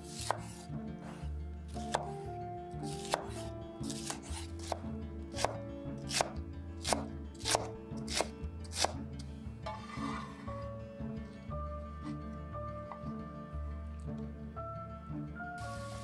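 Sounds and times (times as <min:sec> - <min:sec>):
soft background music: 0:00.0 - 0:16.0
knife chopping on wooden board: 0:00.1 - 0:02.2, 0:02.8 - 0:09.0.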